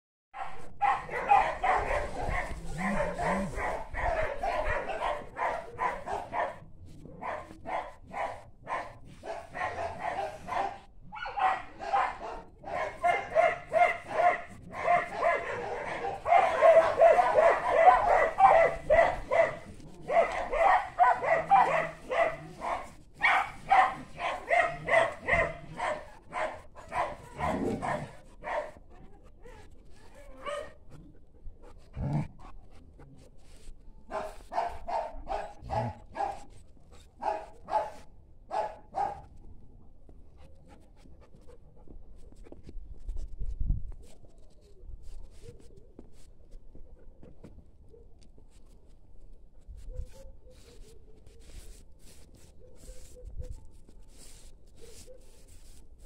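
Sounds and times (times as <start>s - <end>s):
dog barking: 0.4s - 28.8s, 30.2s - 30.8s, 34.1s - 36.5s, 37.2s - 39.3s, 52.6s - 53.7s, 54.8s - 55.4s.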